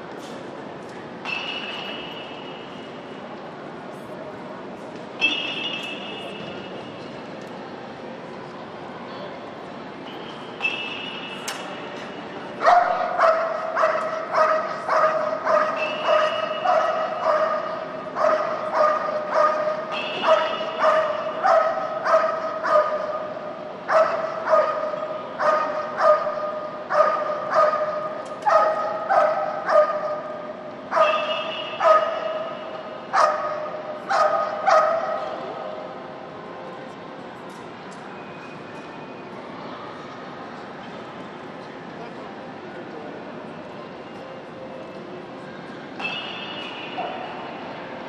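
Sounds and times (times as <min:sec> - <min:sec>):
dog barking: 0:12.6 - 0:23.2, 0:23.9 - 0:30.3, 0:30.9 - 0:32.5, 0:33.1 - 0:35.3.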